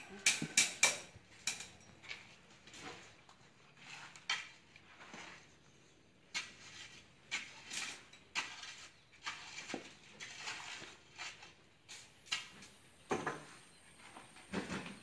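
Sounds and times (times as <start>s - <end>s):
metallic clinks of tools on rebar: 0.0s - 2.3s.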